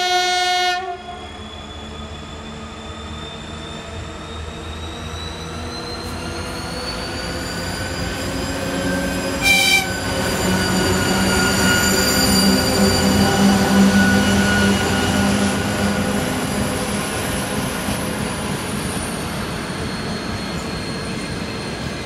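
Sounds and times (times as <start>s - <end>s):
locomotive horn toot: 0.0s - 1.2s, 9.4s - 10.0s
diesel locomotive engine: 0.0s - 22.0s.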